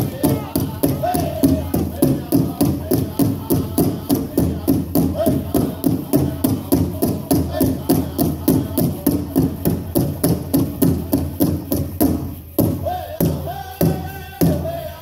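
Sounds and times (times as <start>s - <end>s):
drum group singing: 0.0s - 15.0s
steady drumbeat: 0.0s - 15.0s.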